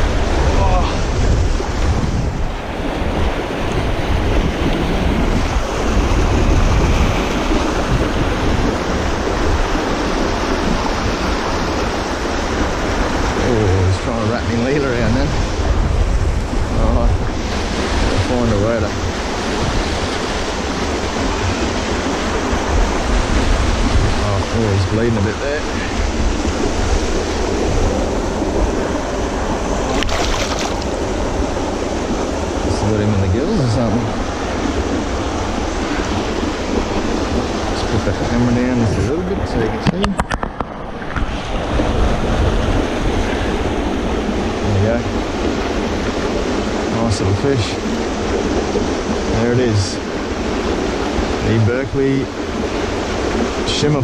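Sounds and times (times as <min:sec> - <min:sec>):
water rushing: 0:00.0 - 0:54.0
wind buffeting microphone: 0:00.0 - 0:54.0
sharp splash of fish: 0:29.9 - 0:30.9.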